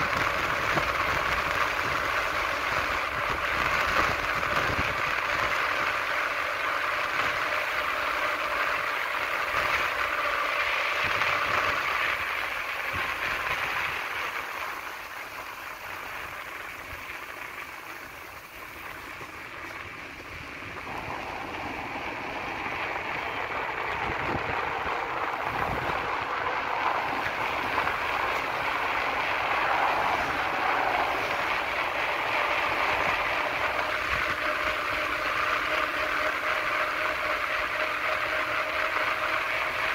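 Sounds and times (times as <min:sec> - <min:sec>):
wheel noise on asphalt: 0:00.0 - 0:39.9
wind rushing: 0:20.2 - 0:34.4.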